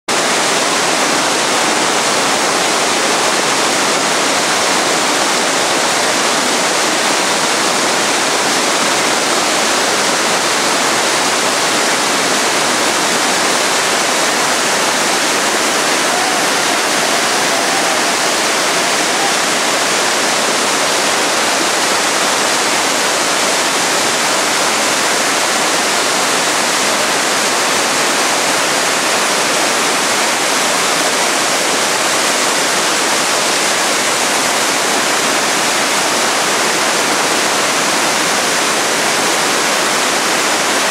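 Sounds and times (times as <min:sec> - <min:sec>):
river rapids roaring: 0:00.1 - 0:40.9.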